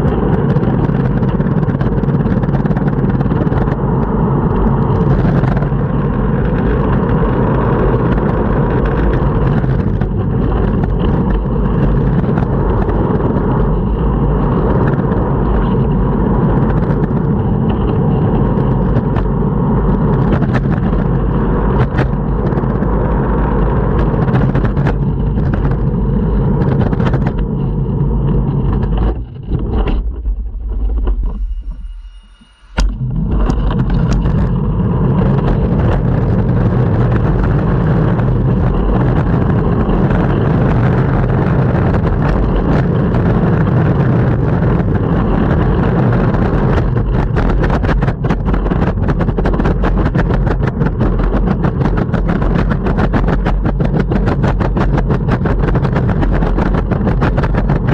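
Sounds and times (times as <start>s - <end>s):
longboard wheels rolling on pavement: 0.0s - 31.7s, 32.8s - 57.9s.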